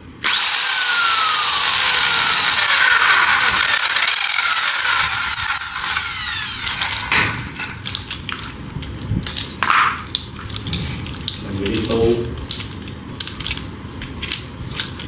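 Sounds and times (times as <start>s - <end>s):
electric drill winding down: 0.2s - 7.6s.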